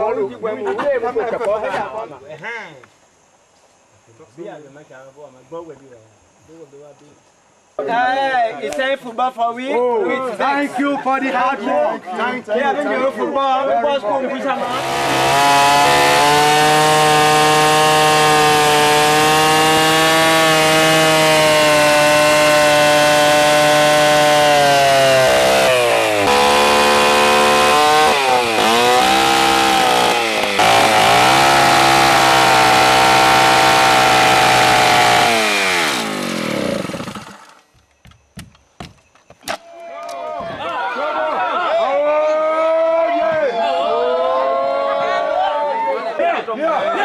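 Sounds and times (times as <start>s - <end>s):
chainsaw cutting log: 14.6s - 37.7s.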